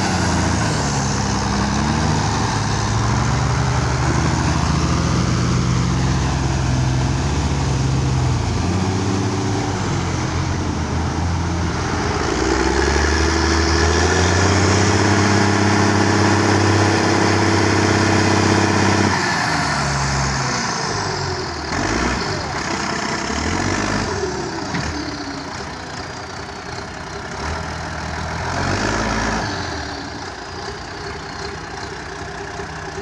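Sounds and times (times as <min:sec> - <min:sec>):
tractor diesel engine working hard: 0:00.0 - 0:33.0.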